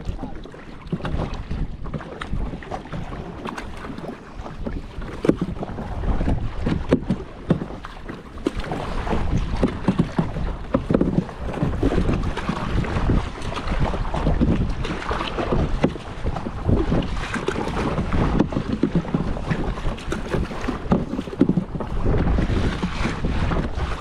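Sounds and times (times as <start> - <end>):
paddle strokes splashing water: 0.0 - 24.0
wind on microphone: 0.0 - 24.0.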